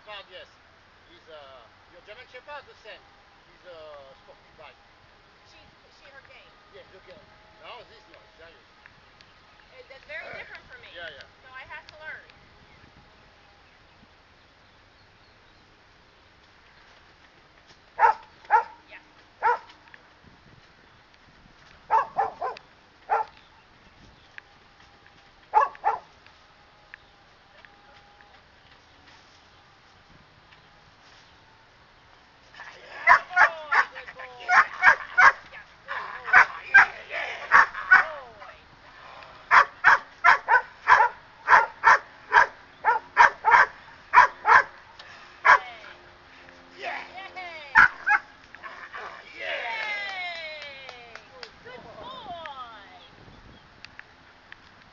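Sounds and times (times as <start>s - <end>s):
dog barking: 18.0s - 18.8s, 19.4s - 19.7s, 21.9s - 23.3s, 25.5s - 26.1s, 33.0s - 38.1s, 39.5s - 44.8s, 45.4s - 45.6s, 47.8s - 49.2s.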